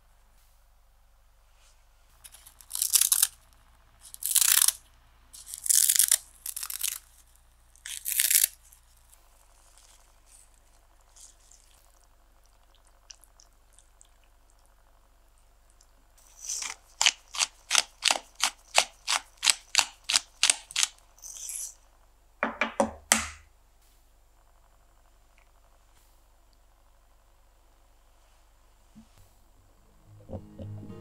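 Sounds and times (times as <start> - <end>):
seaweed crunching and tearing: 2.3 - 3.4, 4.0 - 4.8, 5.4 - 9.0, 16.2 - 21.0.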